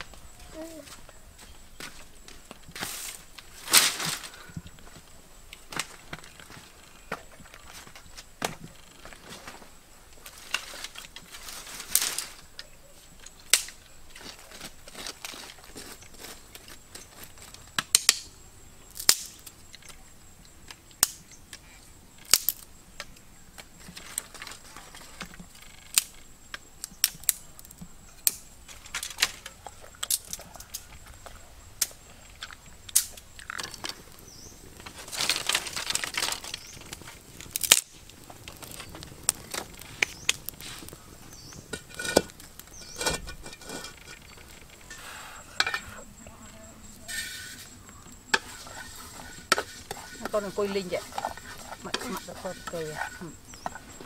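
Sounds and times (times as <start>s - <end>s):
rustle: 0.0s - 54.0s
wood fire crackling: 0.0s - 54.0s
sharp fire pops: 13.4s - 13.8s, 18.9s - 19.5s, 32.8s - 44.6s.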